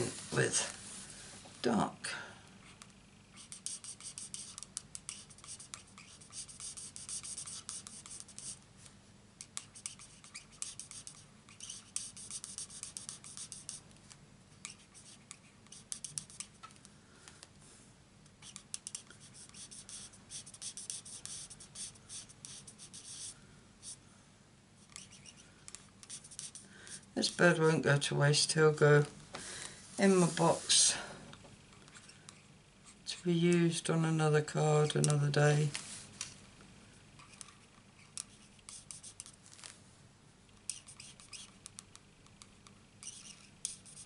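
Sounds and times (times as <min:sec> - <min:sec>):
marker scratching on cardstock: 0:02.6 - 0:08.6, 0:09.4 - 0:13.8, 0:14.6 - 0:16.6, 0:18.4 - 0:24.0, 0:24.8 - 0:27.6, 0:37.2 - 0:39.4, 0:40.6 - 0:44.0.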